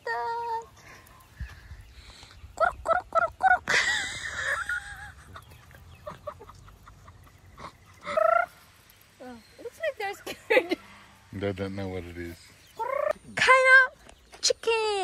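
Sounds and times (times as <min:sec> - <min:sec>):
chickens clucking: 0:02.4 - 0:09.1.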